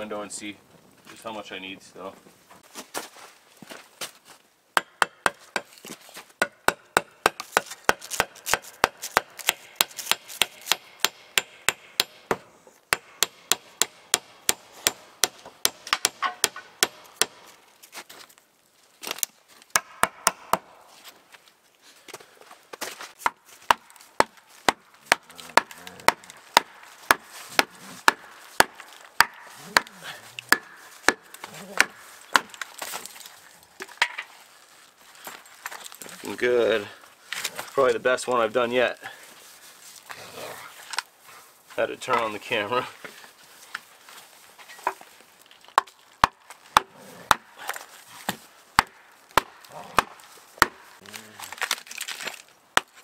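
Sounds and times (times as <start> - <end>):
wooden club knocking wedges: 6.4 - 17.4, 23.2 - 32.9, 48.2 - 50.9.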